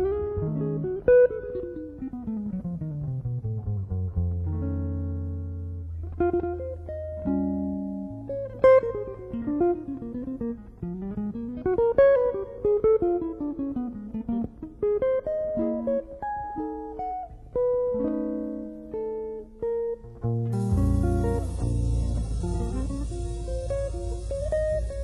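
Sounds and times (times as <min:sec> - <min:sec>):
plucked guitar music: 0:00.0 - 0:25.0.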